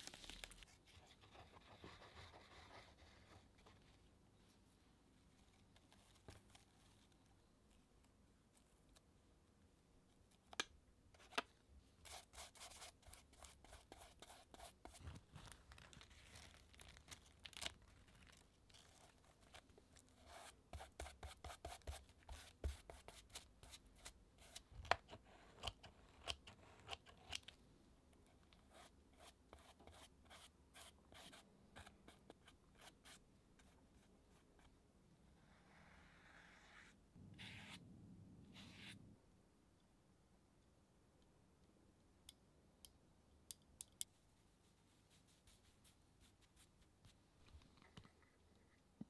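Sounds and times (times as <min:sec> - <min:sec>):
paper crinkling and rustling: 0:00.0 - 0:01.8, 0:15.0 - 0:20.1.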